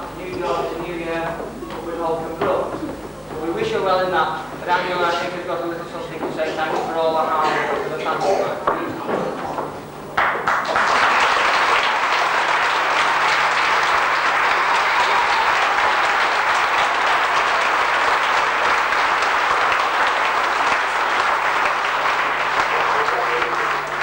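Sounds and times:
audience applauding: 0:09.6 - 0:24.0.

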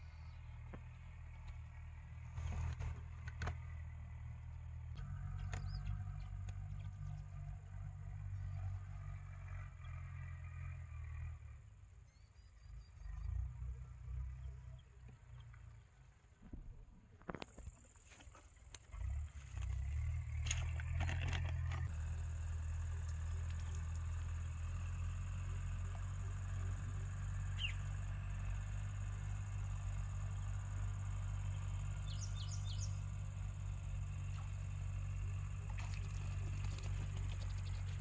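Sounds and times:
bird chirping: 0:05.2 - 0:07.3, 0:27.4 - 0:28.0, 0:31.9 - 0:33.1
handling knocks and rustles: 0:16.5 - 0:21.9.

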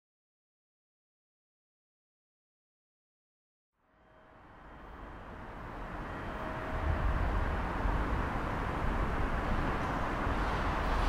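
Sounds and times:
outdoor rumble and hiss: 0:03.9 - 0:11.0.

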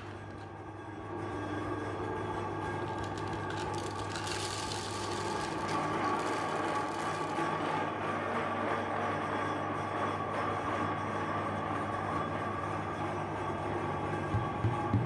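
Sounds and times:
hissy grinding noise: 0:02.7 - 0:07.9
meat grinder motor hum: 0:02.8 - 0:07.9.

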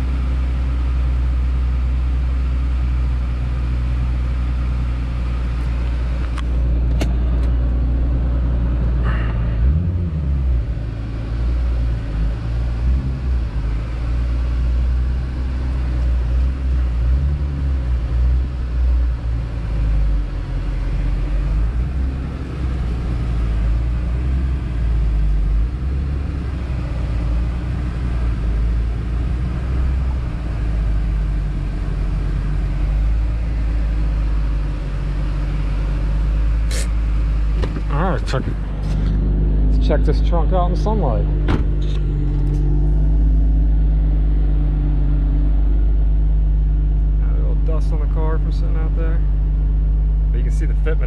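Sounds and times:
car engine deep rumble: 0:00.0 - 0:51.0.

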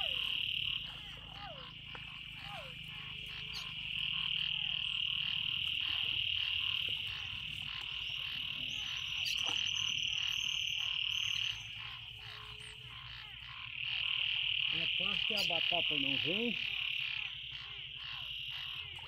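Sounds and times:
frogs croaking: 0:00.0 - 0:19.0
frogs trilling: 0:00.0 - 0:19.0.

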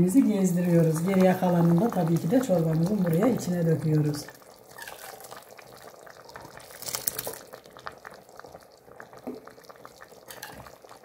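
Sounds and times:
soup bubbling in pot: 0:00.0 - 0:11.0
liquid pouring into pot: 0:00.6 - 0:11.0
spoon knocking and scraping pan: 0:10.3 - 0:10.7.

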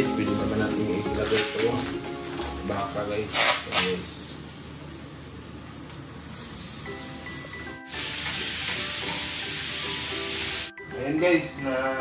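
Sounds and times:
faint background music: 0:00.0 - 0:04.3, 0:06.3 - 0:12.0
meat sizzling in a pan: 0:03.8 - 0:10.7.

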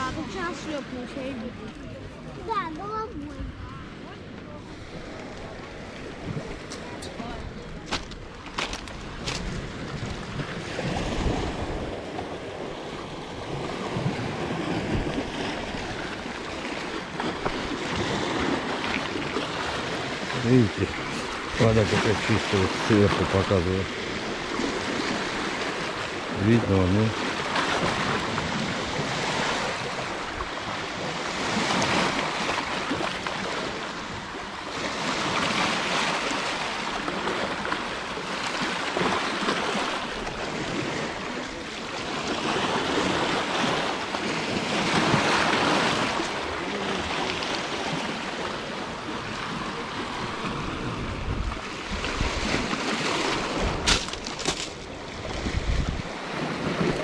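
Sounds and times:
sea waves over pebbles: 0:04.6 - 0:57.0
wind buffeting microphone: 0:50.2 - 0:54.2, 0:54.8 - 0:57.0.

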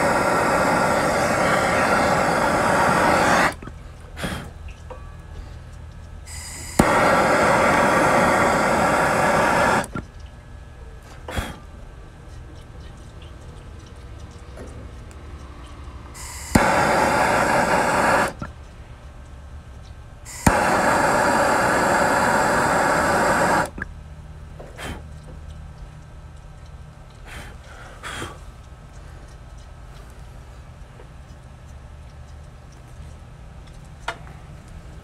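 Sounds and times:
gas torch ignition click: 0:00.0 - 0:04.5, 0:06.3 - 0:10.0, 0:16.2 - 0:18.6, 0:20.3 - 0:23.9
gas torch hissing: 0:00.0 - 0:04.6, 0:06.3 - 0:10.0, 0:11.3 - 0:11.6, 0:16.2 - 0:18.5, 0:20.3 - 0:23.8, 0:24.8 - 0:25.0.

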